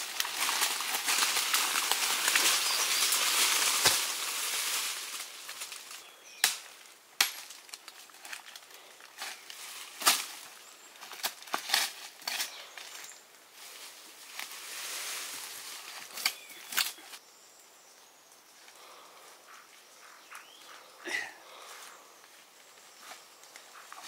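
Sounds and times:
branches cracking and snapping: 0:00.0 - 0:13.2, 0:14.3 - 0:17.2
leafy branches rustling: 0:00.0 - 0:17.2.

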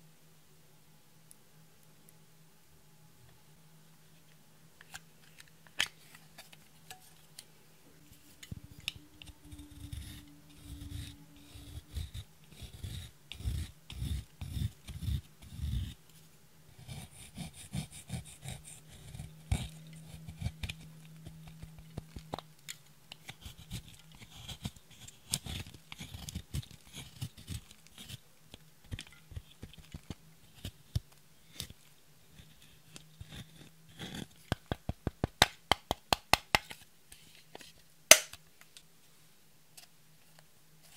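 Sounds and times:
spatula scraping powder: 0:08.1 - 0:16.0, 0:16.7 - 0:22.4, 0:23.2 - 0:34.8.

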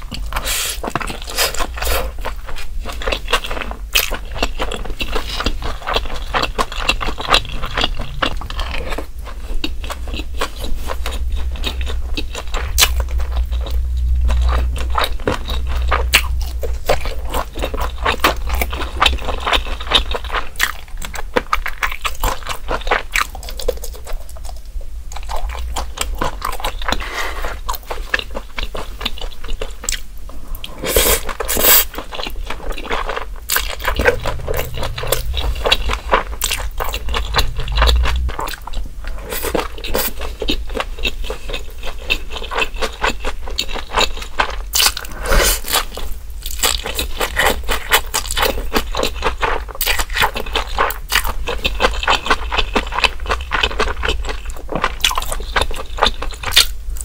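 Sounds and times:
wet chewing: 0:00.0 - 0:24.5.

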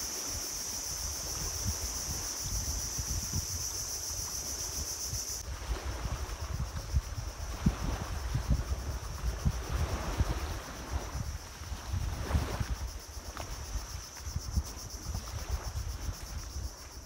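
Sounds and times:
high-pitched insect drone: 0:00.0 - 0:05.4
wind buffeting microphone: 0:00.6 - 0:17.0.

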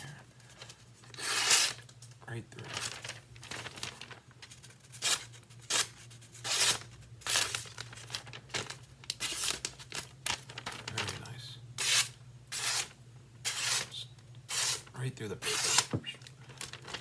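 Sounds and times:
low steady hum: 0:00.0 - 0:17.0
knife slicing paper: 0:01.2 - 0:01.8, 0:04.9 - 0:07.7, 0:09.2 - 0:09.7, 0:11.8 - 0:15.9.

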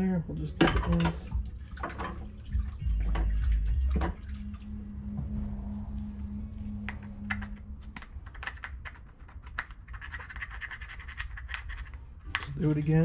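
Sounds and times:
faint steady hum: 0:00.0 - 0:13.0
low rumbling bump: 0:00.7 - 0:08.8
small tools clicking and tapping: 0:07.3 - 0:13.0.

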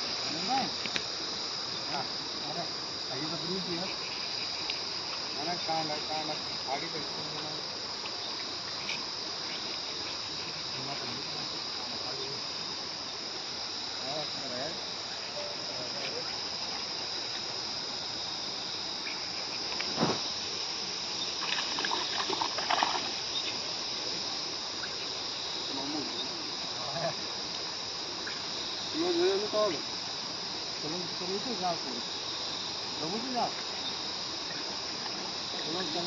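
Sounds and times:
insects chirring: 0:00.0 - 0:36.0
sudden thump: 0:19.9 - 0:20.3
water splashing and dripping: 0:21.4 - 0:23.2.

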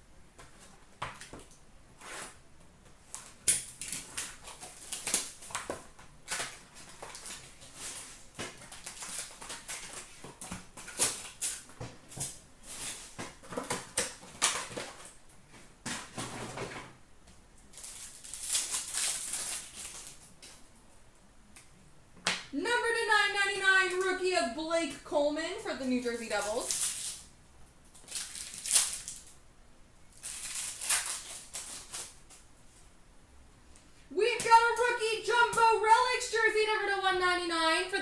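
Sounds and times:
packaging crinkling and tearing: 0:03.1 - 0:15.2, 0:17.7 - 0:20.6, 0:26.1 - 0:27.3, 0:27.9 - 0:29.4, 0:30.1 - 0:32.4.

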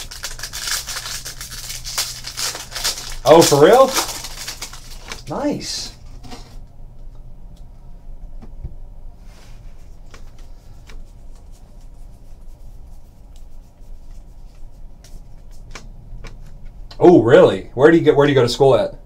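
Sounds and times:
trading cards rustling: 0:00.0 - 0:05.8
low steady hum: 0:00.0 - 0:19.0.

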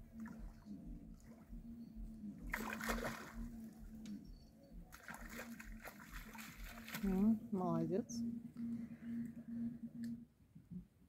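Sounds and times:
water splashing: 0:02.4 - 0:04.0, 0:04.8 - 0:08.0.

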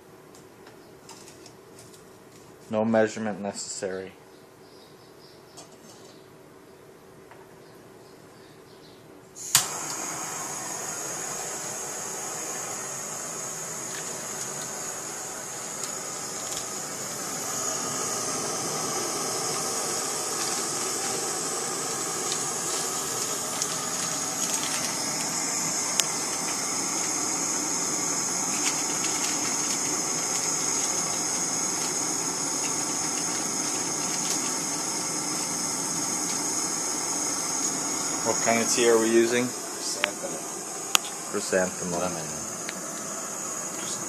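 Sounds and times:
gas stove burner hissing: 0:09.4 - 0:44.0.

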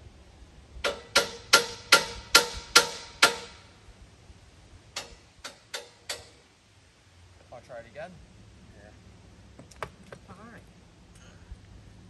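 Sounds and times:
hammer striking steel: 0:00.8 - 0:03.6.

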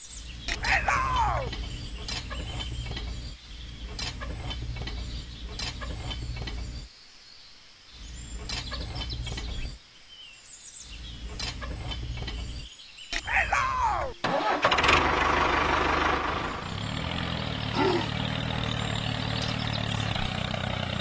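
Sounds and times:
high bird chirps: 0:16.6 - 0:20.4.

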